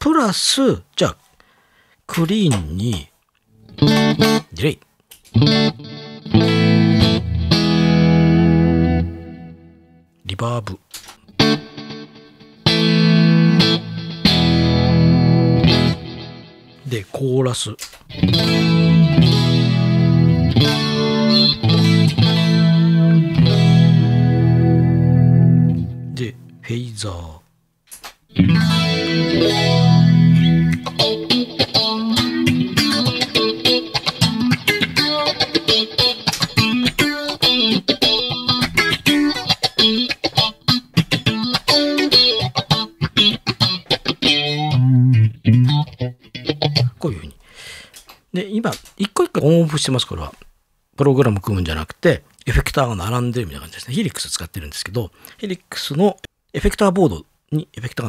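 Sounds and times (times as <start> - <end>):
clean electric guitar chords: 3.7 - 4.4, 5.4 - 10.0, 11.3 - 16.8, 18.1 - 26.6, 28.3 - 47.0.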